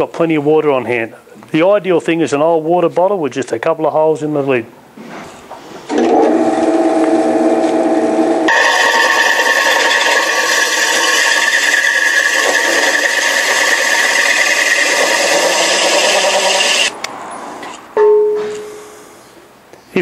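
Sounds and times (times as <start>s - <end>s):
hole saw grinding with high whine: 5.9s - 17.0s.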